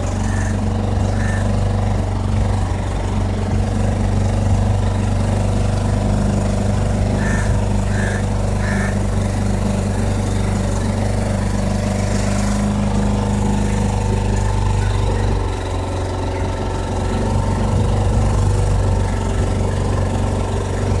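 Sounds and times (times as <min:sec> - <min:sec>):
motorboat engine running: 0:00.0 - 0:21.0.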